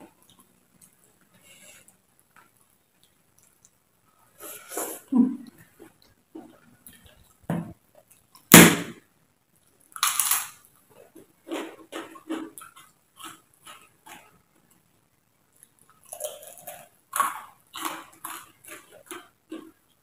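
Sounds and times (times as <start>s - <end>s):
crunchy bites into cracker: 9.9s - 10.6s, 16.0s - 19.7s
crunchy chewing: 9.9s - 14.8s, 15.5s - 20.0s.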